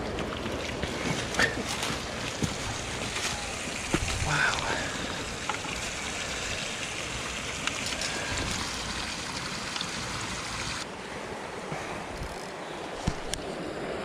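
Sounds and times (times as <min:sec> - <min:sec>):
creek running over rocks: 0:00.0 - 0:13.7.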